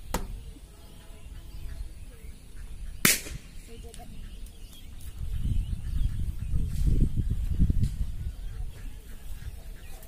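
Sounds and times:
sharp pop: 3.0 - 3.4.

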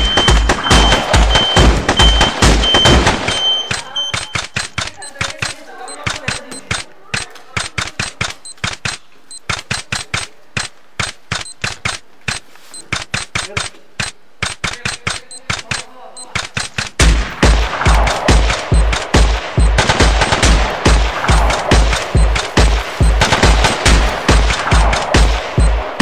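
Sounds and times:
rapid gunfire: 0.0 - 26.0
heavy regular low beat: 16.5 - 26.0.

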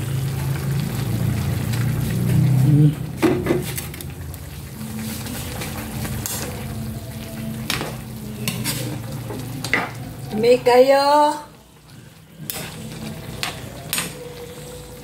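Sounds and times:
light sizzle: 0.0 - 15.0
metal spatula scraping a pan: 8.4 - 9.0, 12.4 - 14.2.

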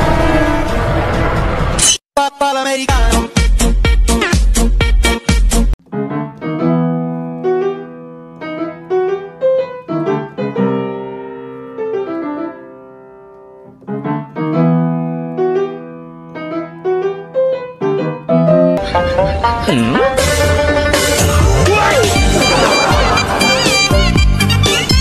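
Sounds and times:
solo piano music: 5.8 - 21.0.

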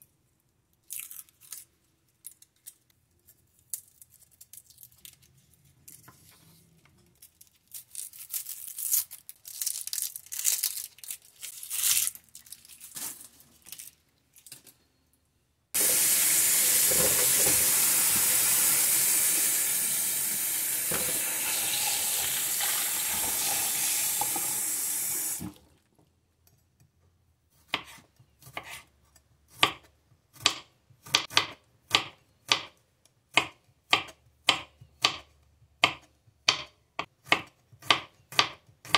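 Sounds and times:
tap water running into sink: 15.8 - 25.6.

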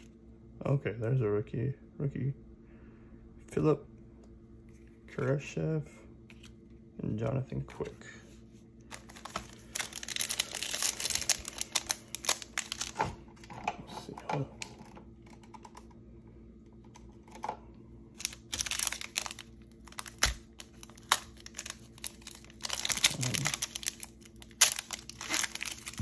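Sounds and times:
foil wrapper crinkling: 8.9 - 13.0, 18.1 - 26.0.

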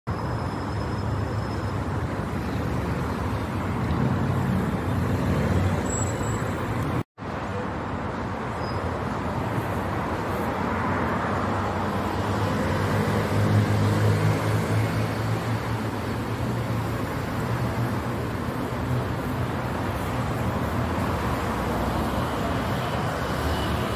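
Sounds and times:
street traffic rumble: 0.1 - 23.9.

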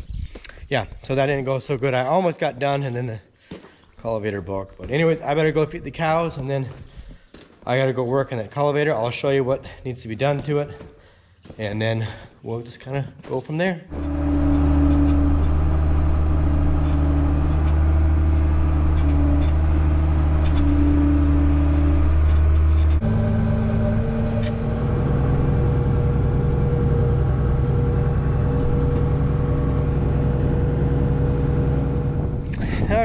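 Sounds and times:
held tone: 13.9 - 32.2
vehicle engine humming: 13.9 - 33.0.

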